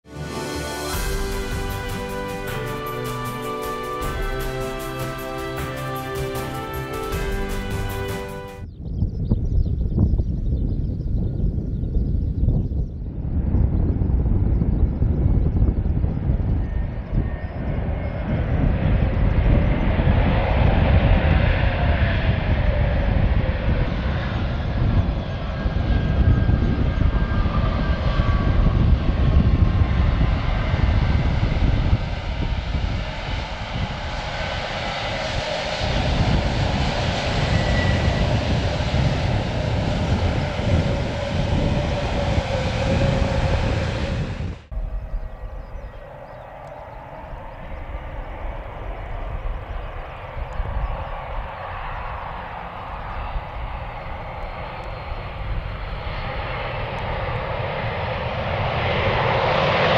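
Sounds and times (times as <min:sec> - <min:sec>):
jet engines rumbling: 0:00.0 - 0:59.9
engine whines: 0:13.2 - 0:59.9.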